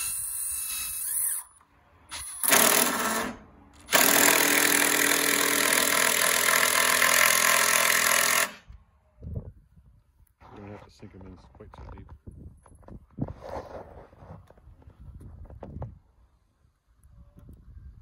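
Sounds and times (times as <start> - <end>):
cordless drill driving screws: 0.0 - 8.6.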